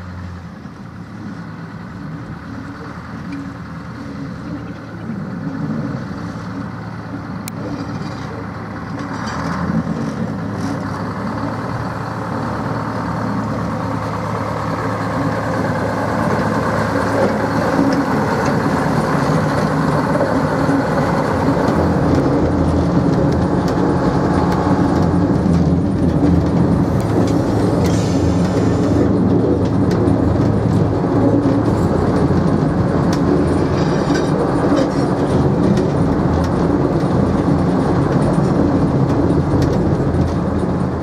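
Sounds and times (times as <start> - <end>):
locomotive engine running: 0.0 - 41.0.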